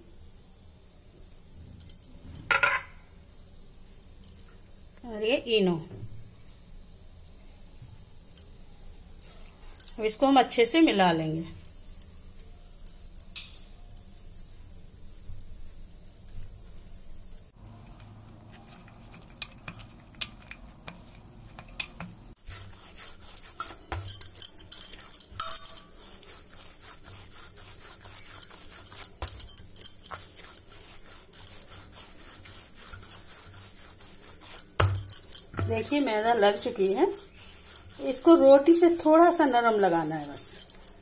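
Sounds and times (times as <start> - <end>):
scraping and clinking on metal plate: 1.8 - 3.0, 21.6 - 41.0
hands kneading dough: 16.4 - 41.0.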